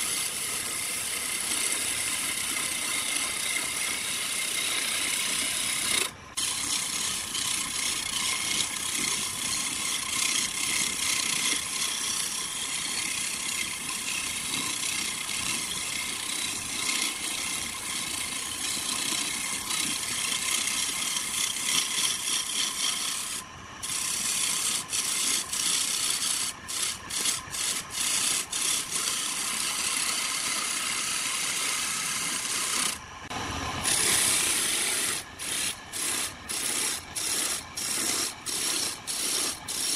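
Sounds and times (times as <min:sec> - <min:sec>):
chisel scraping spinning wood: 0:00.0 - 0:39.9
faint lathe whine: 0:00.0 - 0:39.9.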